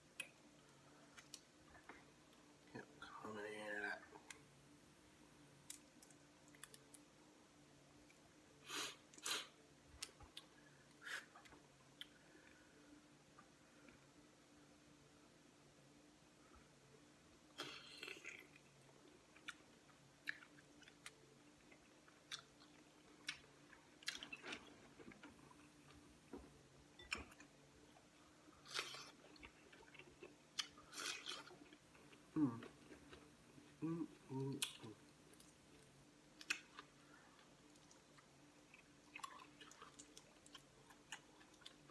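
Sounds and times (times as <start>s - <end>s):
person chewing and smacking: 17.6s - 25.9s, 27.0s - 33.6s, 34.4s - 41.9s
person humming: 32.4s - 32.7s, 33.8s - 35.0s.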